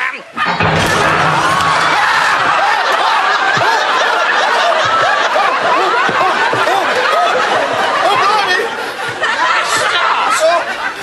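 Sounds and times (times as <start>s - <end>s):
studio audience laughing: 2.3s - 11.0s.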